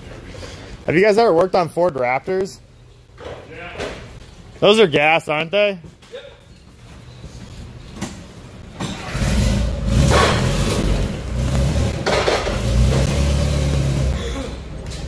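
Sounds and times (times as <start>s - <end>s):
engine low rumble: 8.5s - 15.0s.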